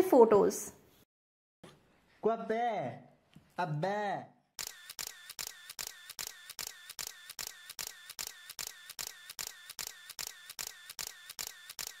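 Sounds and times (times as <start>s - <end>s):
camera shutter clicking: 4.6s - 12.0s.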